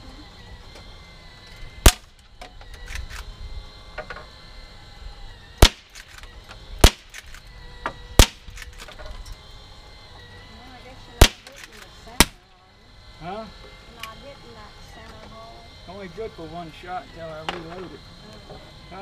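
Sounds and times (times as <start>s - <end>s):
air rifle shots: 1.8s - 2.2s, 5.6s - 6.2s, 6.8s - 7.4s, 8.2s - 8.9s, 11.2s - 12.4s.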